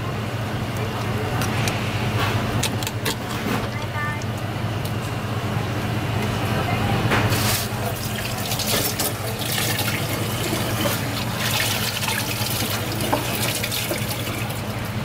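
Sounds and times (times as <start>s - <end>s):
water running and splashing: 7.4s - 15.0s.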